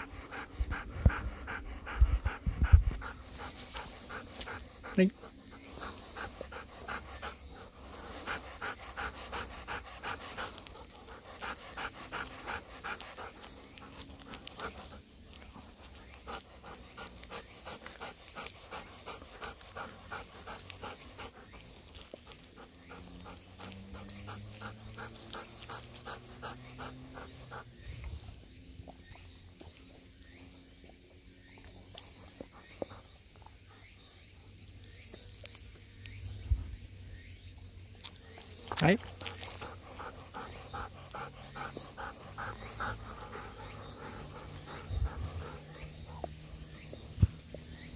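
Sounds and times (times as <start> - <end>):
dog panting rapidly: 0.0 - 28.2, 38.6 - 47.9.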